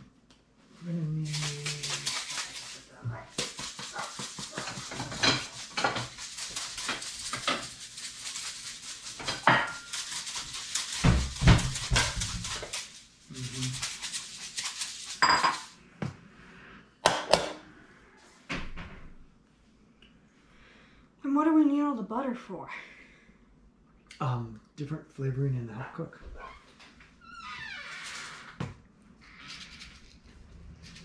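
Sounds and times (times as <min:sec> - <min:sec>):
dishes and utensils clattering: 0:04.2 - 0:06.2, 0:09.2 - 0:10.1, 0:15.2 - 0:15.8.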